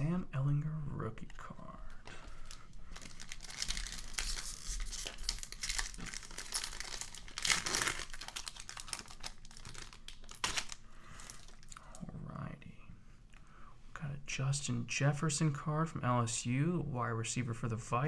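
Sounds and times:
card pack wrapper crinkling: 2.2 - 11.8.

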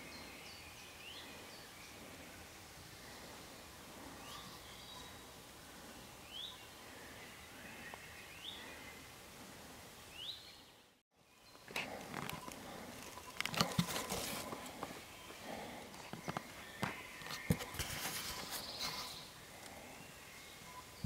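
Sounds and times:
animals rustling in dry leaves: 11.8 - 15.8, 16.6 - 19.8.

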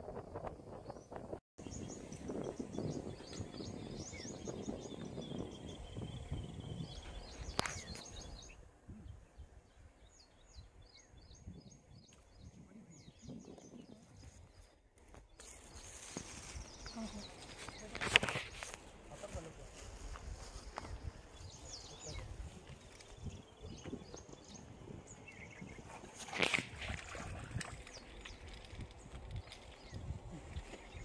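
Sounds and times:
wind noise rumble: 0.0 - 9.7, 19.8 - 31.0
small birds chirping: 0.8 - 31.0.

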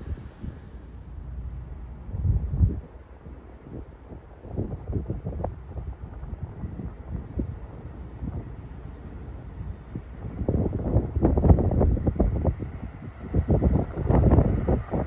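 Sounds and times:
low rumble: 0.0 - 2.9
insects chirping: 0.4 - 15.0.

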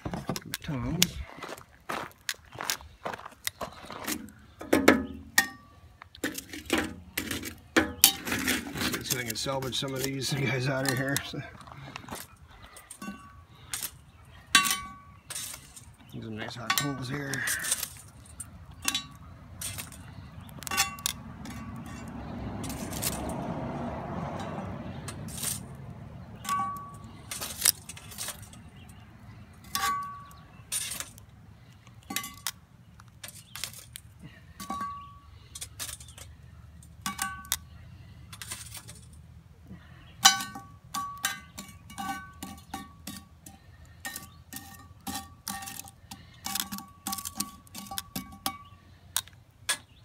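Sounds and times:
charcoal clinking on iron lid: 14.5 - 15.8, 18.8 - 20.0, 20.6 - 23.2, 34.6 - 36.2, 37.0 - 37.6, 40.2 - 48.8.

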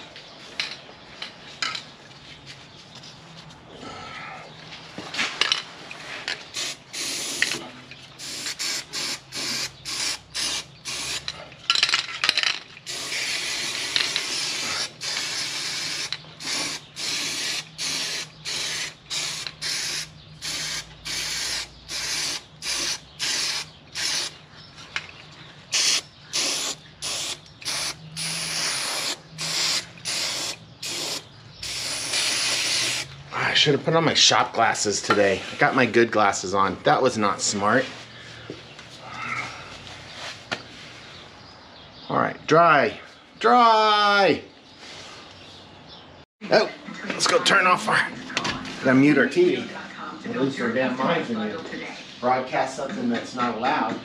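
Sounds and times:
aerosol spray can hissing: 6.6 - 7.6, 8.2 - 11.2, 12.9 - 24.3, 25.7 - 33.1.

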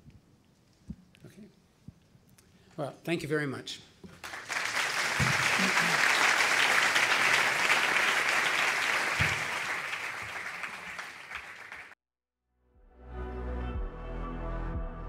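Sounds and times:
audience applauding: 4.2 - 12.0
music: 12.5 - 15.0.

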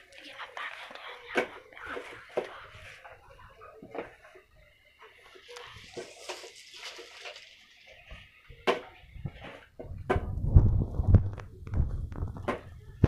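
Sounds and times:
plastic bag rustling: 5.4 - 8.3.

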